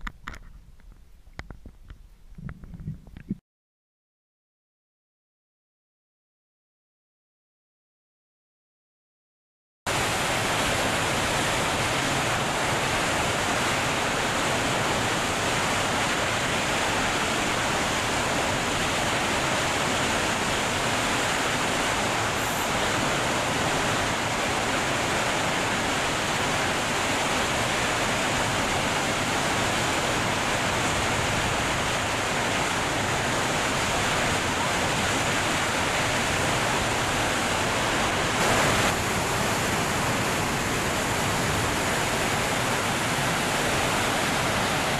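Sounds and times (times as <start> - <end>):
waterfall rushing: 9.9 - 44.9.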